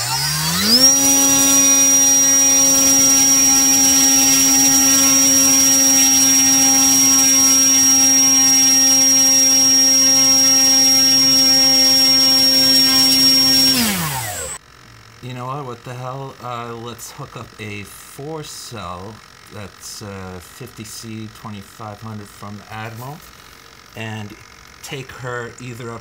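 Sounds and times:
electric motor propeller buzzing: 0:00.0 - 0:15.1.

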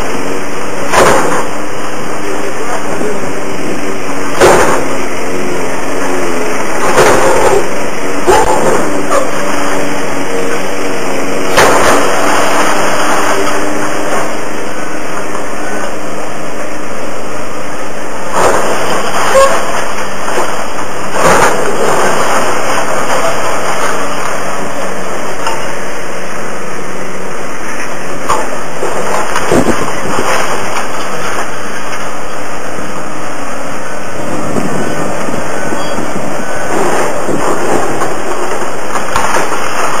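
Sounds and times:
excavator running: 0:00.0 - 0:40.0
falling rubble crashing: 0:00.7 - 0:03.1, 0:04.3 - 0:15.5, 0:18.3 - 0:25.7, 0:28.2 - 0:32.2, 0:36.6 - 0:40.0.

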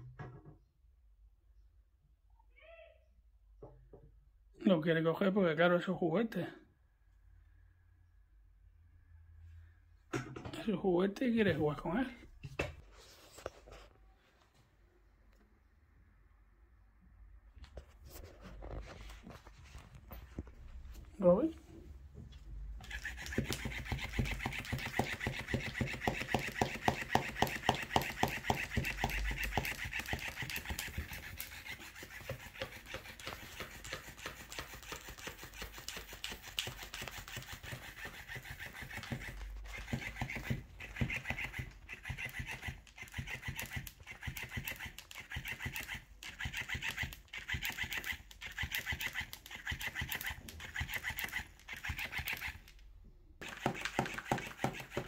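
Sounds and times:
small motor buzzing: 0:22.8 - 0:52.8, 0:53.4 - 0:55.0
toy tail slapping table: 0:22.8 - 0:52.8, 0:53.4 - 0:55.0.

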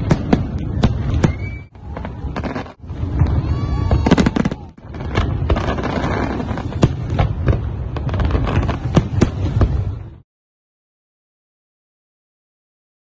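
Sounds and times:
fireworks bangs and booms: 0:00.0 - 0:10.2
low rumble and crackle: 0:00.0 - 0:10.2.

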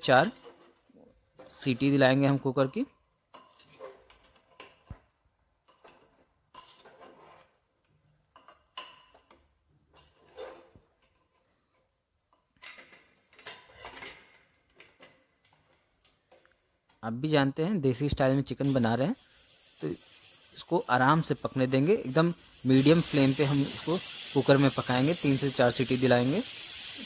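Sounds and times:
spatula scraping a metal pot: 0:00.2 - 0:01.7, 0:03.3 - 0:04.8, 0:05.7 - 0:07.6, 0:09.9 - 0:11.4.

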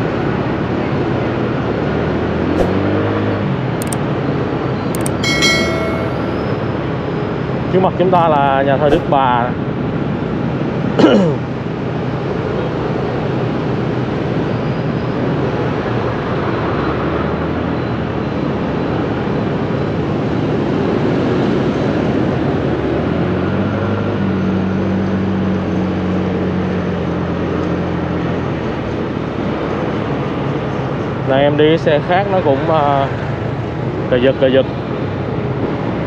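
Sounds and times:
sharp knock: 0:02.6 - 0:02.8, 0:08.9 - 0:09.2.

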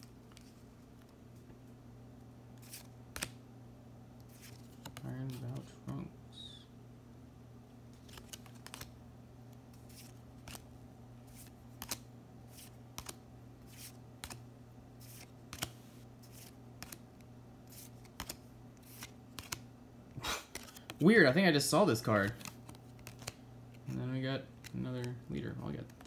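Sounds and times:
steady low hum: 0:00.0 - 0:26.0
cards flicking: 0:02.6 - 0:03.4, 0:08.0 - 0:09.0, 0:09.8 - 0:10.7, 0:11.3 - 0:14.4, 0:15.0 - 0:17.0, 0:17.7 - 0:19.6, 0:22.2 - 0:24.0.

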